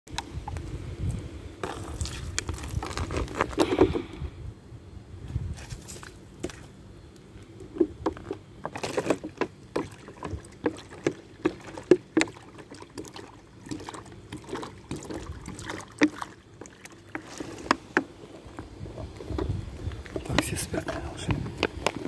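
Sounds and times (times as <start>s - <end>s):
water glugging from plastic bottle: 7.8s - 20.5s
water splashing in bowl: 9.7s - 17.7s.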